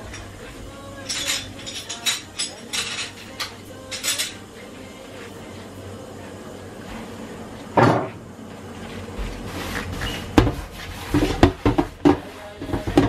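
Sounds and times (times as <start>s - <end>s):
scourer scrubbing: 8.8s - 12.9s.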